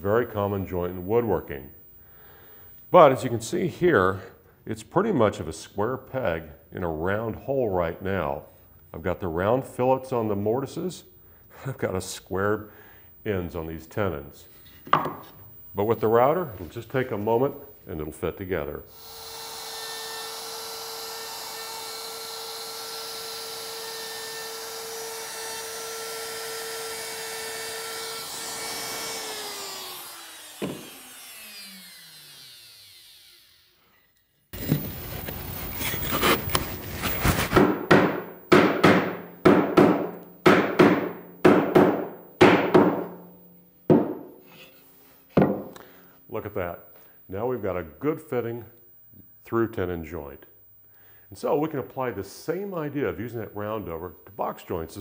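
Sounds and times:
router whining and spinning down: 18.9 - 37.5.

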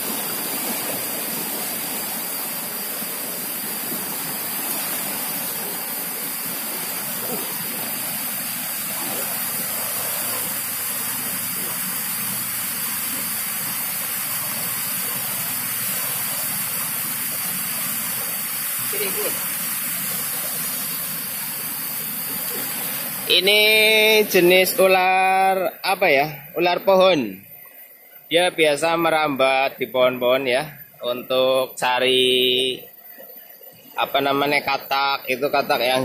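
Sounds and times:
river rushing over rocks: 0.0 - 17.2.

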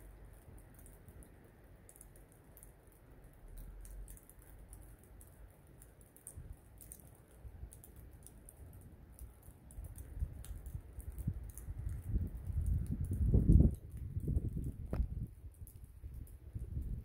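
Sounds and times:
light ticking and patter of snow: 0.0 - 17.0
wind rumble on microphone: 9.7 - 17.0.

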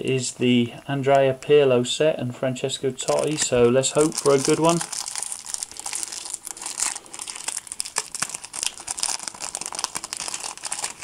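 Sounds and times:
foil wrapper tearing and crinkling: 3.0 - 11.0.

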